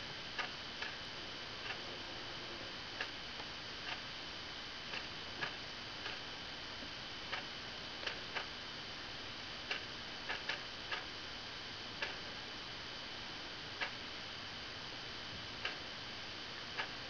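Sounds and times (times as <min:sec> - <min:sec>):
clock ticking irregularly: 0:00.4 - 0:01.0, 0:01.6 - 0:01.8, 0:04.9 - 0:06.2, 0:09.7 - 0:11.1, 0:12.0 - 0:12.3, 0:13.8 - 0:14.0, 0:15.6 - 0:15.8, 0:16.8 - 0:17.0.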